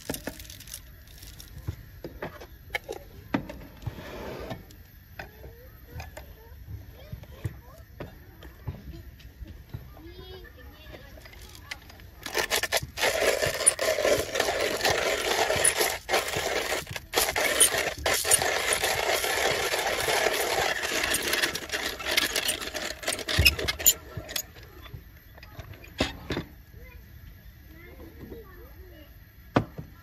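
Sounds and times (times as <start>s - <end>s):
hand coffee grinder grinding beans: 0.0s - 1.8s, 11.2s - 26.1s.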